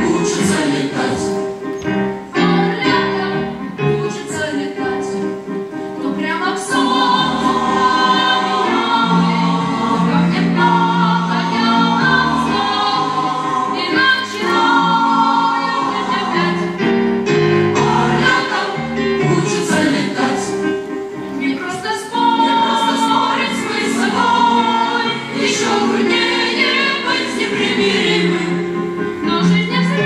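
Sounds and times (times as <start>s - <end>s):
choir singing in parts: 0.0s - 30.0s.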